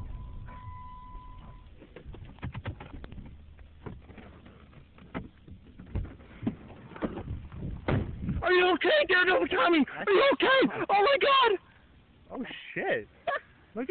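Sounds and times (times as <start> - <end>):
steady high beep: 0.0 - 1.7
low rumble: 0.0 - 2.4.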